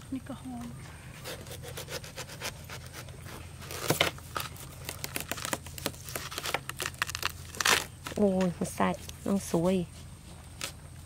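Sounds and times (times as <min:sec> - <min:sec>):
knife cutting watermelon: 0:01.2 - 0:09.2
watermelon cracking open: 0:01.2 - 0:09.2, 0:10.5 - 0:10.8.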